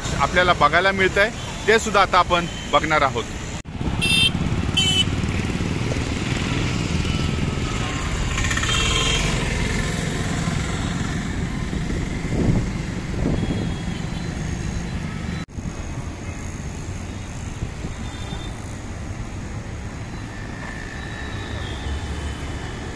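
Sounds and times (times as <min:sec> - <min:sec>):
motorcycles passing: 0:00.0 - 0:22.9
road traffic: 0:00.0 - 0:22.9.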